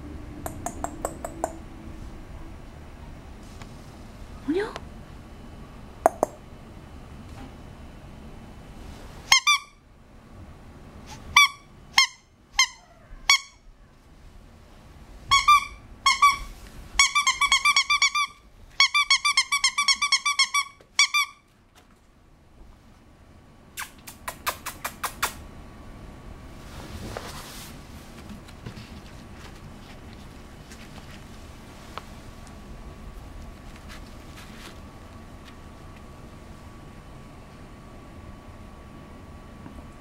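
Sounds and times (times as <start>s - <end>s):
squeaky toy squeaking: 9.3s - 9.8s, 11.3s - 13.6s, 15.3s - 21.4s.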